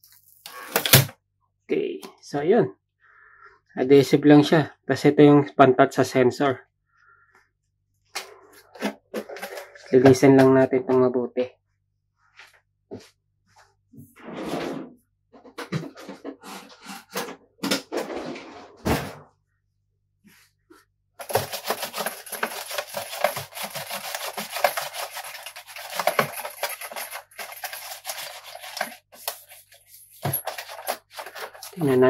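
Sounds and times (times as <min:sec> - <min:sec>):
wipe scrubbing glossy plastic: 0:20.7 - 0:31.9
handling sounds: 0:21.2 - 0:32.0.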